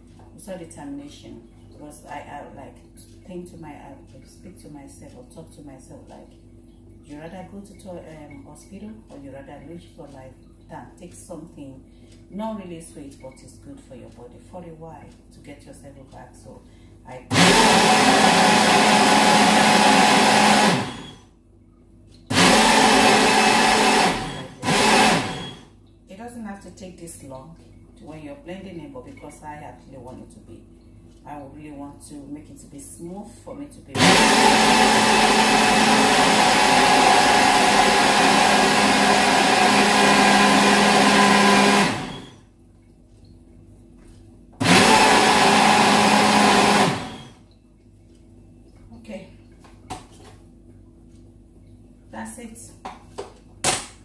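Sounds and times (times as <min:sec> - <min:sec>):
blender running: 0:17.3 - 0:21.2, 0:22.3 - 0:25.7, 0:34.0 - 0:42.4, 0:44.6 - 0:47.4.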